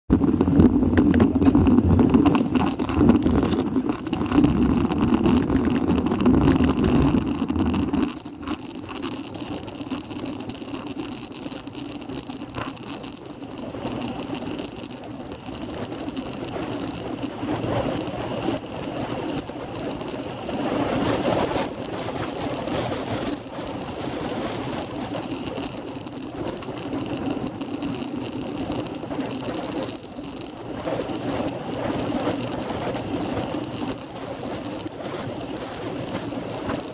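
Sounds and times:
wind buffeting microphone: 0.1s - 9.0s
tyres humming on asphalt: 0.1s - 36.9s.

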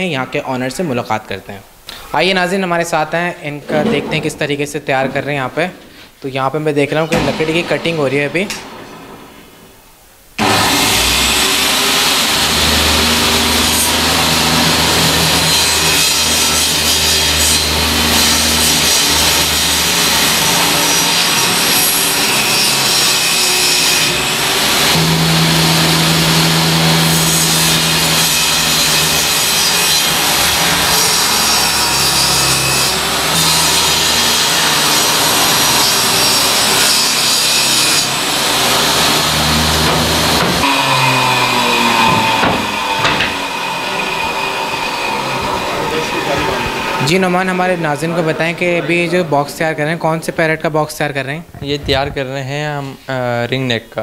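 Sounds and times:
table saw cutting wood: 6.9s - 9.8s, 10.4s - 49.3s
saw motor hum: 10.4s - 48.5s.

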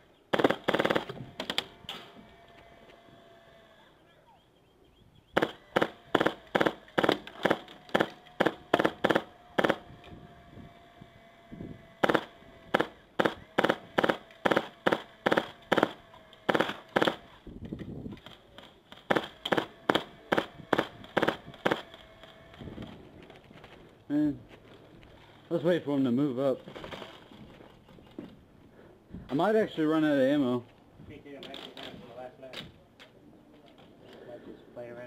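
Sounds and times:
airsoft rifle shots: 0.3s - 2.1s, 5.4s - 9.9s, 12.0s - 17.3s, 18.9s - 22.4s.

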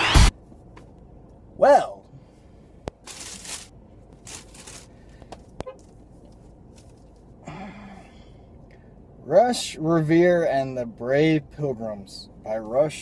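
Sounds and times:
plastic bag rustling: 3.0s - 5.1s.

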